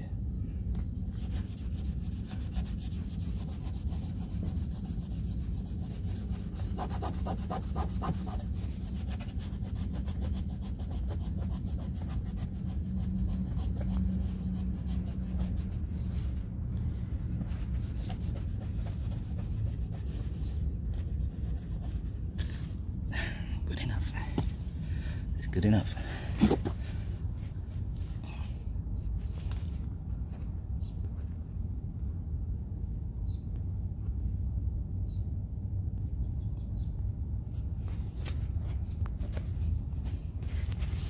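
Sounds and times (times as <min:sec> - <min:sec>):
towel rubbing on plastic: 0:17.3 - 0:22.3.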